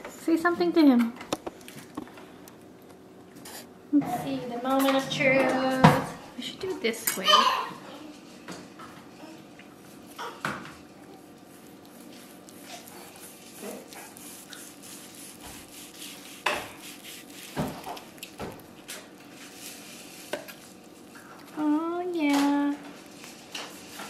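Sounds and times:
knife slicing meat on wooden board: 12.5 - 18.6.

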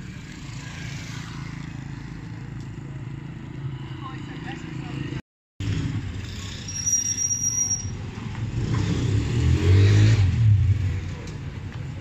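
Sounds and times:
motorcycle engine passing: 0.0 - 4.2
street traffic: 0.0 - 12.0.

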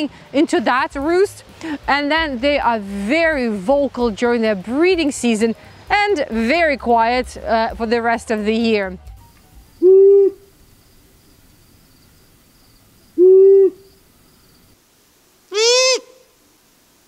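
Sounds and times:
owl call rising and falling: 9.2 - 10.6, 13.2 - 14.0, 15.5 - 16.4
owl hooting: 9.7 - 10.8, 13.1 - 14.0, 15.5 - 16.4.

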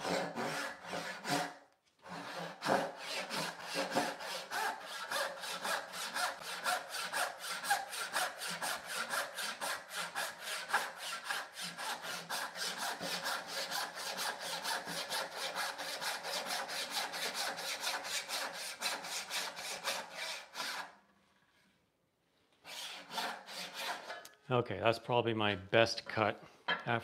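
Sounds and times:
hand saw cutting wood: 0.0 - 21.0, 22.6 - 24.3.

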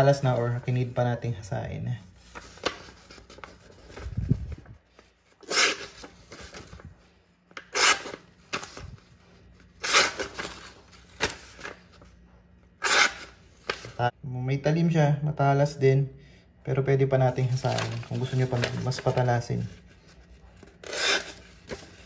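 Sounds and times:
paper rustling: 2.1 - 12.2, 12.8 - 14.0, 17.3 - 22.0
knife cutting paper: 5.4 - 6.3, 7.6 - 8.8, 12.8 - 14.0, 20.8 - 22.0.

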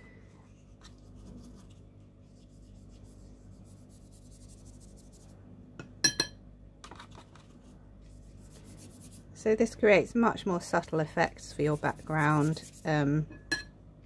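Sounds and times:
brush scratching on paper: 0.4 - 5.3, 8.0 - 9.3, 11.5 - 13.0.

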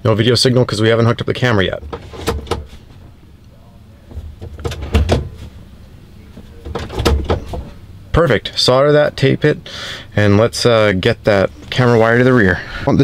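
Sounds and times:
low rumble inside cab: 0.0 - 13.0
gear selector clunks and clicks: 6.4 - 7.8.

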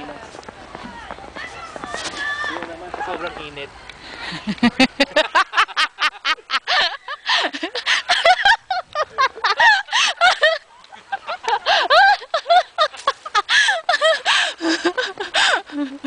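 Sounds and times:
high-pitched laughter: 4.2 - 16.0.

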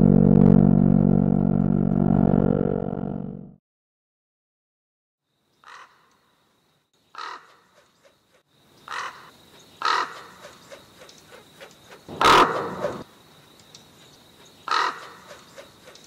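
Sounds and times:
distorted music cue: 0.0 - 3.4
bird cawing: 5.6 - 6.2, 7.1 - 8.1, 8.9 - 13.0, 14.6 - 16.0.

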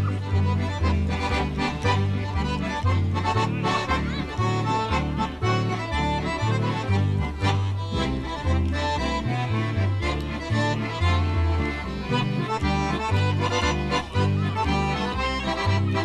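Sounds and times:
accordion ensemble playing polka: 0.0 - 16.0.

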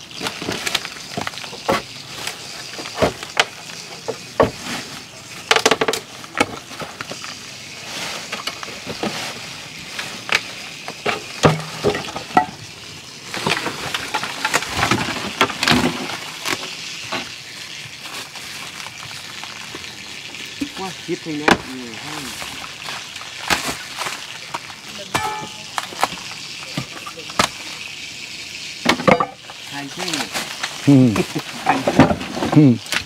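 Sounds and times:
steady hiss: 0.0 - 33.0
wood and metal knocks and clatters: 2.8 - 4.6, 5.5 - 6.6, 11.0 - 12.6, 31.6 - 33.0.

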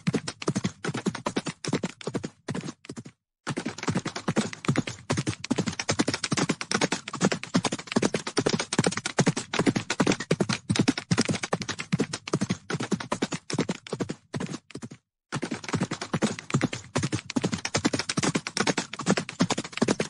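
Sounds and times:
horses galloping on hard ground: 0.0 - 20.0.

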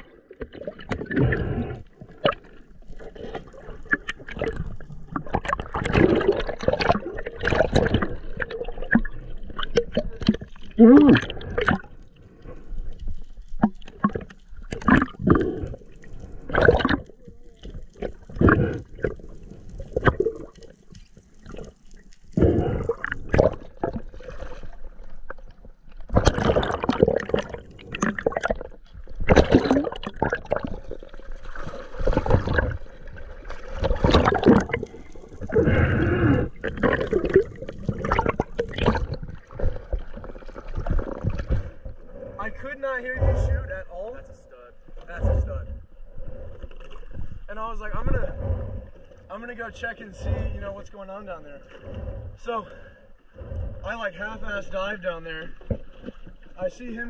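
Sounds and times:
water splashing: 0.0 - 44.4
water sloshing and gurgling: 0.0 - 57.0.

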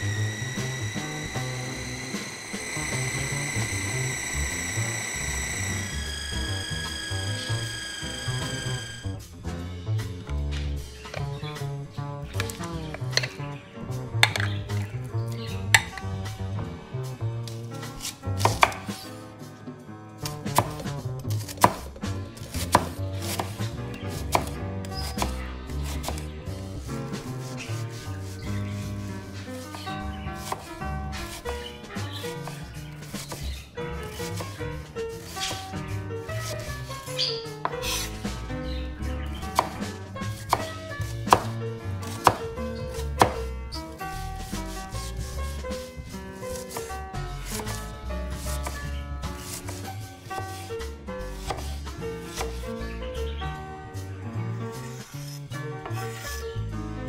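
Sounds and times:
soft background music: 0.0 - 57.0
knife chopping on cutting board: 18.0 - 19.0, 20.2 - 26.3, 29.7 - 31.6, 32.2 - 34.6, 36.4 - 36.7, 39.4 - 43.5, 47.5 - 47.8, 48.4 - 50.7, 51.3 - 52.6.

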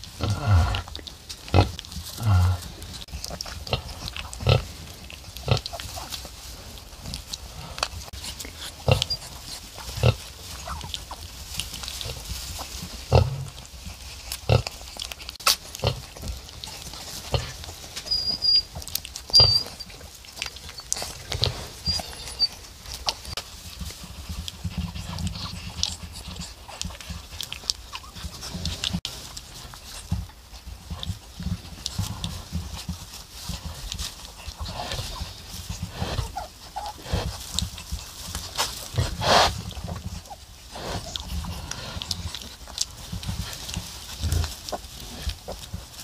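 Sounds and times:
pigs grunting: 0.0 - 6.1, 7.4 - 11.3, 11.9 - 13.8, 14.4 - 15.0, 15.7 - 16.5, 17.1 - 17.8, 34.4 - 45.8
straw rustling: 0.0 - 46.0
piglets squeaking: 8.1 - 11.2, 17.2 - 23.4, 34.7 - 42.7.

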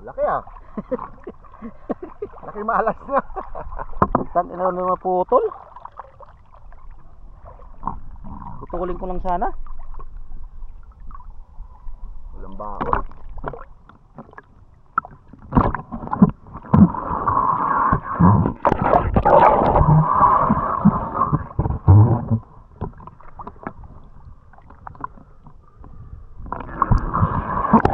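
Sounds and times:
water sloshing and gurgling: 0.0 - 27.9.

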